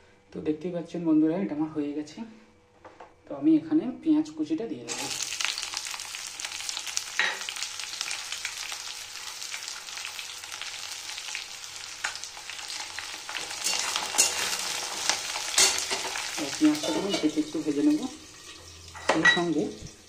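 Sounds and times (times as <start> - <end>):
onions sizzling in hot oil: 4.9 - 20.0.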